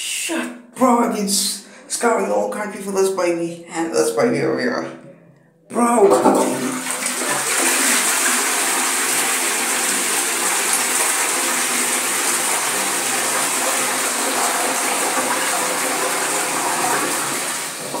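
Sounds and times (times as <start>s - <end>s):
toilet flushing: 5.8s - 18.0s.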